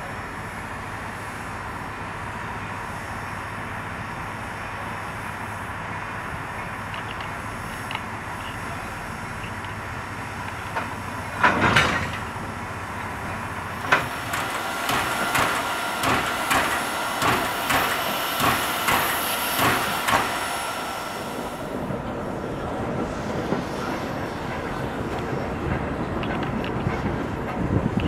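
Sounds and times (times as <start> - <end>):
low train rumble: 0.0 - 28.0
steam locomotive knocking: 10.4 - 28.0.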